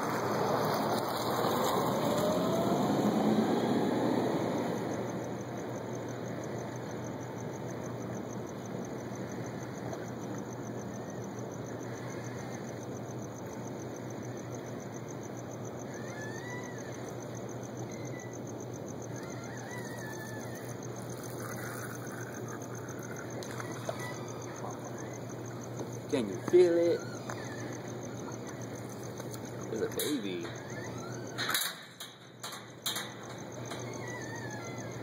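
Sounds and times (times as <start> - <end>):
distant hum: 0.0 - 35.0
faint short squeaks: 19.1 - 35.0
water: 22.8 - 25.1.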